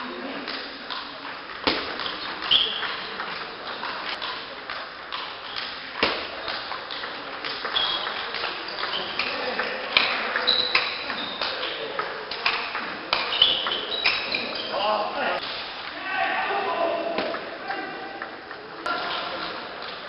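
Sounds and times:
table tennis ball clicking: 0.5s - 14.2s.

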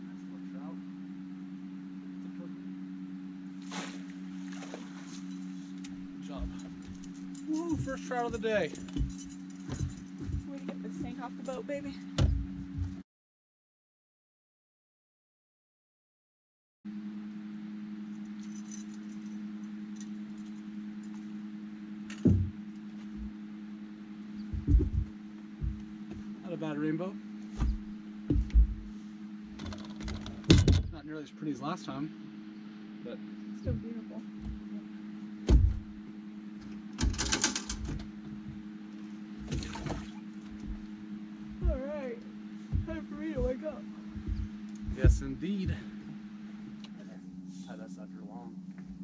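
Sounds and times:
boat motor humming: 0.0s - 13.0s, 16.9s - 49.0s
light rattles: 4.5s - 11.8s
fishing gear clicking and rattling: 6.5s - 10.5s, 29.6s - 30.7s, 36.8s - 38.2s
loud knock against boat: 24.5s - 26.3s, 27.6s - 28.9s, 35.4s - 35.9s, 42.7s - 45.9s.

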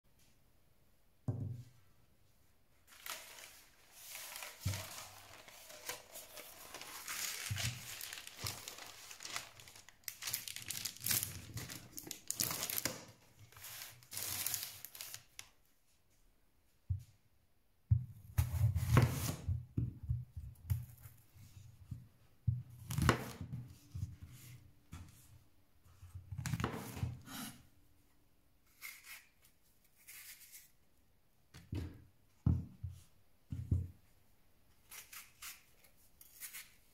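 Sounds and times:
baking paper crinkling and tearing: 2.8s - 15.5s.

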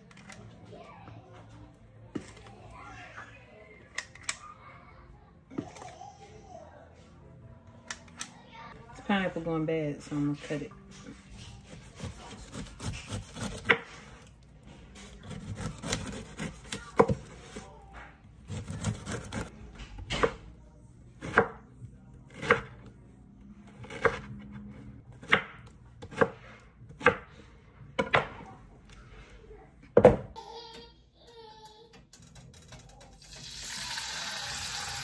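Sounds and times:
knife slicing fruit: 11.5s - 14.3s, 15.0s - 17.7s, 18.4s - 19.5s.

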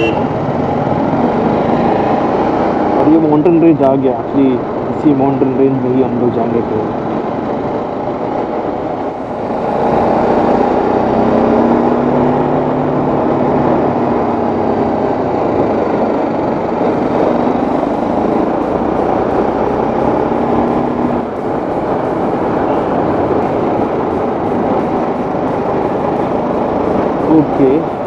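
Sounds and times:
motorcycle engine riding: 0.0s - 28.0s
background music: 17.0s - 28.0s.

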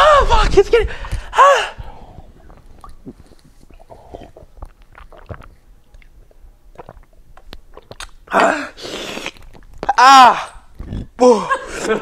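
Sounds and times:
person gulping milk: 1.2s - 11.4s
mouth clicks: 2.1s - 10.1s.

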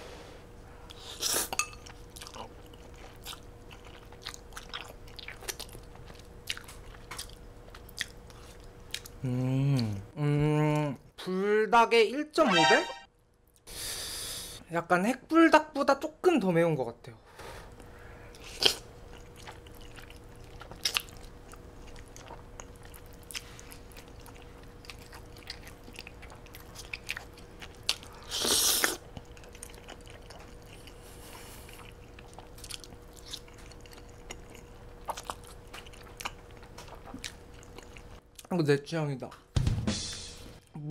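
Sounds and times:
faint steady hum: 0.0s - 39.2s
person chewing noodles: 0.9s - 10.0s, 17.7s - 38.5s.

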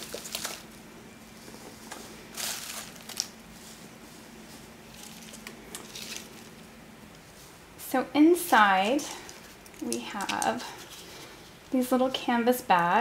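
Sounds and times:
shredded paper rustling: 0.0s - 0.8s, 1.4s - 6.7s.

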